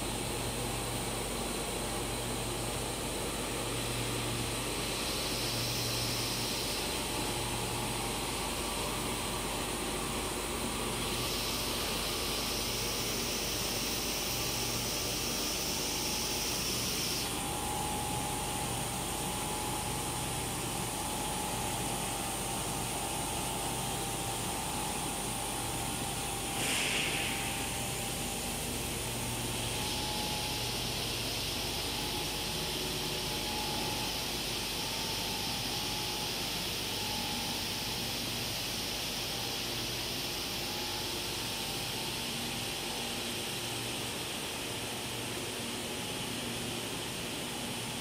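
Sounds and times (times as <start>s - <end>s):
faint steady whine: 0.0s - 48.0s
machine hiss and hum: 0.0s - 48.0s
higher hiss: 26.5s - 28.0s.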